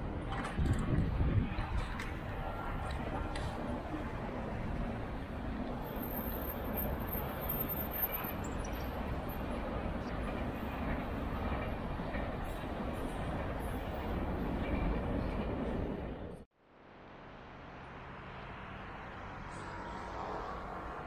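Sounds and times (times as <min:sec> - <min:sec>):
tram rumbling on rails: 0:00.0 - 0:16.5.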